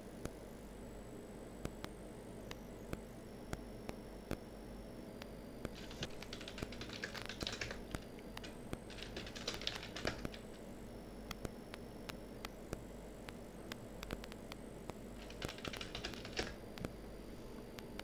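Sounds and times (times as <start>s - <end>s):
typing on computer keyboard: 5.7s - 10.6s, 15.2s - 16.6s.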